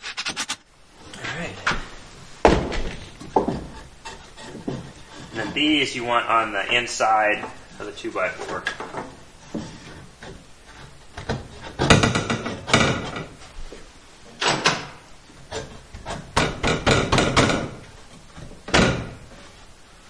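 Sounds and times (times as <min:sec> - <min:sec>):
wood-on-wood knocks: 0:02.4 - 0:05.4, 0:08.4 - 0:13.3, 0:14.4 - 0:19.2.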